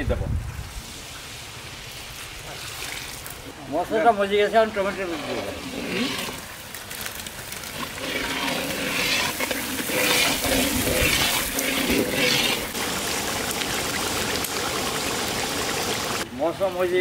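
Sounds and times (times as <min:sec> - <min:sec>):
metal ladle scraping: 0:04.6 - 0:06.5, 0:07.7 - 0:12.8
bubbling simmer: 0:04.6 - 0:16.3
curry sizzling in a pan: 0:07.6 - 0:16.3.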